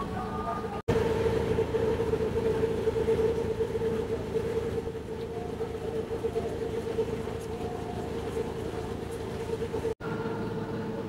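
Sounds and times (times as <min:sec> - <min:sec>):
engine running steadily: 0:00.0 - 0:11.0.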